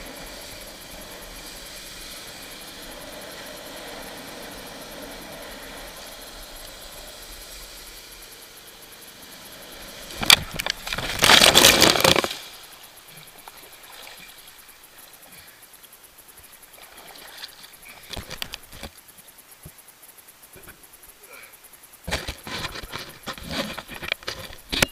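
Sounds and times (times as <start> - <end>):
rush of wakeboard ride: 0.0 - 15.7, 16.4 - 19.5.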